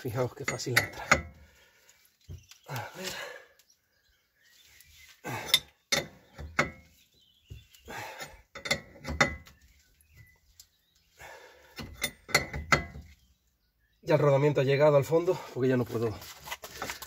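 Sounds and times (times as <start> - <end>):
wrench clinking on metal nut: 8.6 - 9.5, 11.8 - 13.0.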